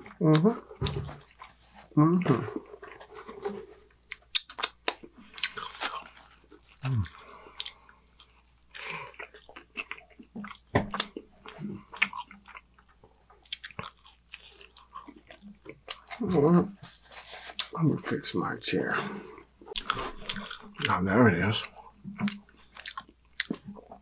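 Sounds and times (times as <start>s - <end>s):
biting and chewing pizza: 0.0s - 18.3s, 18.9s - 24.0s.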